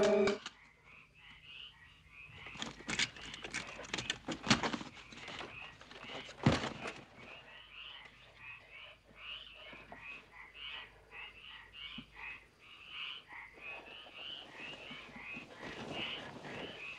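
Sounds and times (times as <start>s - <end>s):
frogs croaking: 0.0s - 4.3s, 4.9s - 16.9s
knocks and rustles: 2.5s - 7.3s.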